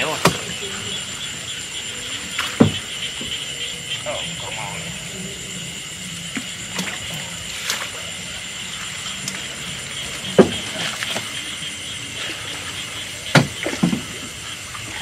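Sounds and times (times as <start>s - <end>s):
sharp knocks or splashes: 0.0s - 0.7s, 2.3s - 3.4s, 6.3s - 8.0s, 10.1s - 11.4s, 13.2s - 14.3s
water sloshing around boat: 0.0s - 15.0s.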